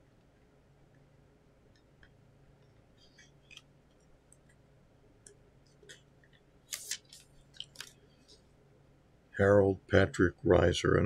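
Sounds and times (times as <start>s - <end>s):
plastic crinkles: 6.7s - 8.0s.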